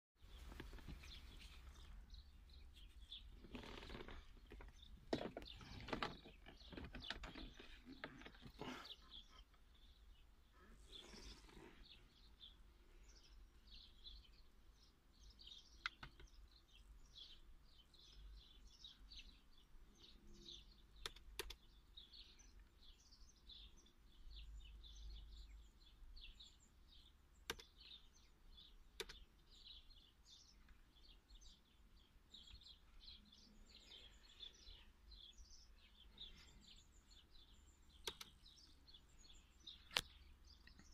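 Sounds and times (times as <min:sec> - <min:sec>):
birds chirping: 0:00.2 - 0:40.9
sharp clicks: 0:15.8 - 0:16.3, 0:21.0 - 0:21.6, 0:27.4 - 0:27.8, 0:28.9 - 0:29.3, 0:38.0 - 0:38.7.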